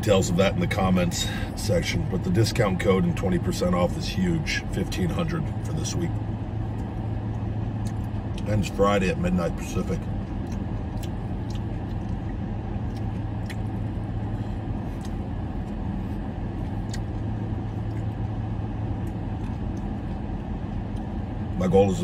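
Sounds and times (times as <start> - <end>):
car idling hum: 0.0 - 22.0
chewing: 6.7 - 8.7, 10.2 - 21.2.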